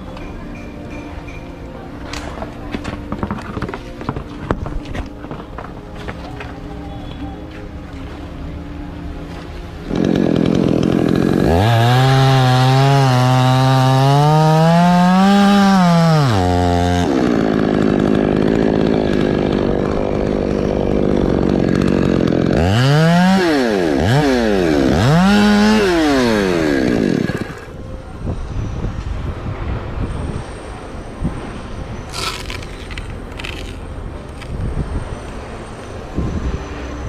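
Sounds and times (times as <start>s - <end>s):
chainsaw revving: 9.8s - 27.7s, 32.1s - 33.8s.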